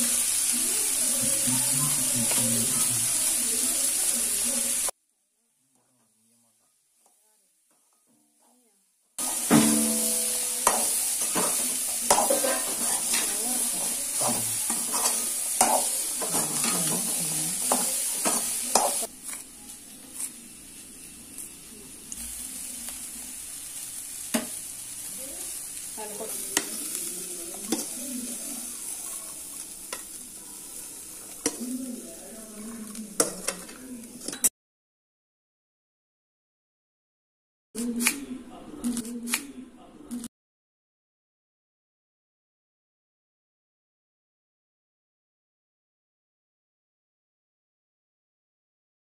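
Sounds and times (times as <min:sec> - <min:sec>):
food sizzling in metal pan: 0:00.0 - 0:05.0, 0:09.2 - 0:34.5
spoon scraping pan: 0:09.2 - 0:19.5, 0:26.2 - 0:31.8.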